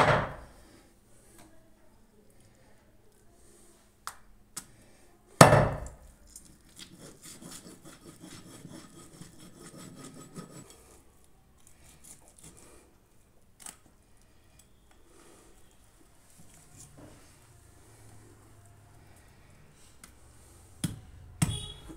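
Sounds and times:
knife sawing meat on wood: 6.8 - 11.0.

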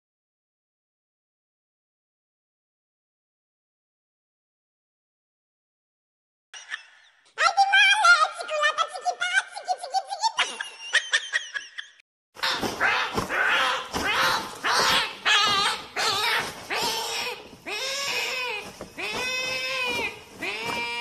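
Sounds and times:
person speaking: 7.4 - 10.4, 12.4 - 21.0
loud drawn-out cries: 12.4 - 21.0.

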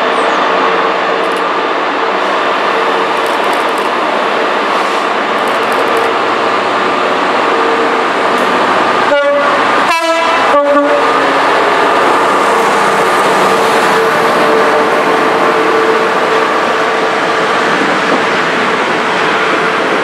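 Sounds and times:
diesel locomotive engine drone: 0.0 - 20.0
train horn blasts: 9.0 - 11.6.

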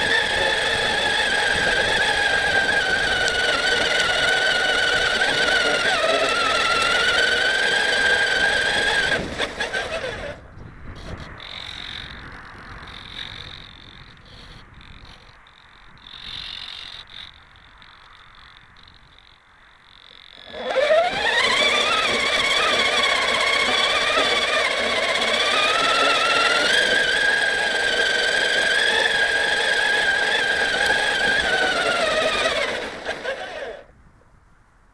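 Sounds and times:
electric motor whining: 0.0 - 10.4, 20.2 - 33.9.

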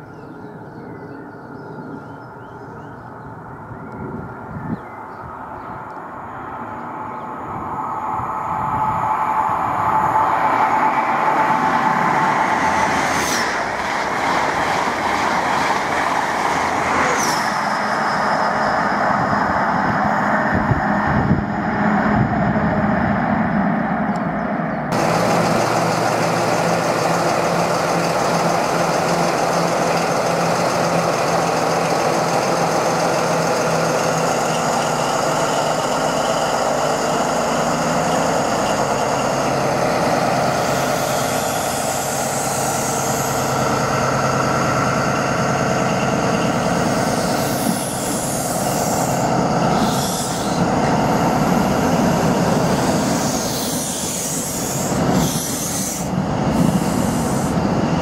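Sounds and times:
diesel locomotive engine running: 0.0 - 58.0
train passing at speed: 0.0 - 58.0
high whine: 5.3 - 58.0.

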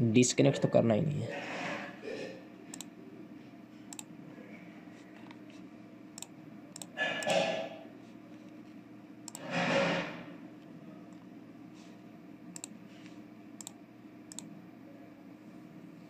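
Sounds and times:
computer mouse clicking: 2.7 - 2.9, 6.2 - 7.4, 9.3 - 9.5, 12.5 - 12.8, 13.6 - 14.5.

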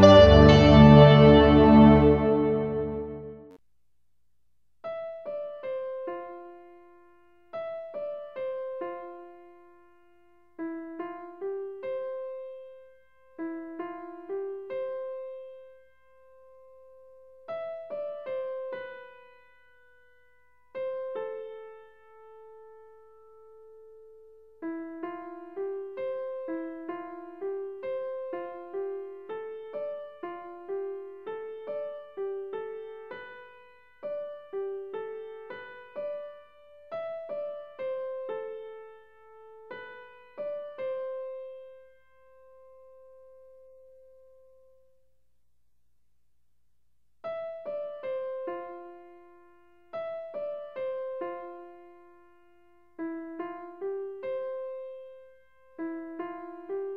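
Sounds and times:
gentle piano melody: 0.0 - 3.6, 5.0 - 44.7, 47.3 - 56.9
slow keyboard melody: 0.0 - 3.6.

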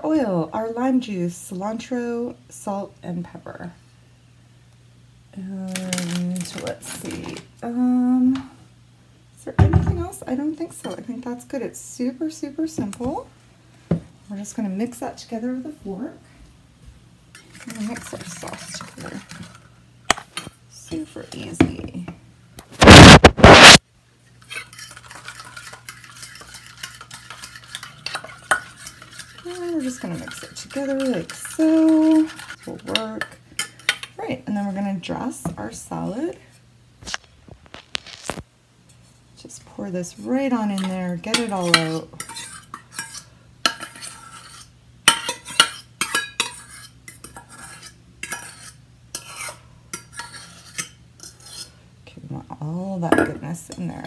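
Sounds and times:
faint steady hum: 0.0 - 54.0
fork stirring in metal bowl: 17.3 - 19.7, 22.9 - 34.8, 40.7 - 51.8.

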